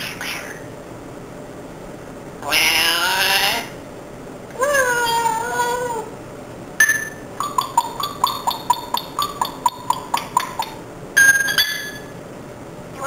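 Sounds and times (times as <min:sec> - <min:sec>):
parrot chirping: 0:02.4 - 0:03.7, 0:07.0 - 0:10.8
parrot whistling: 0:07.4 - 0:10.8.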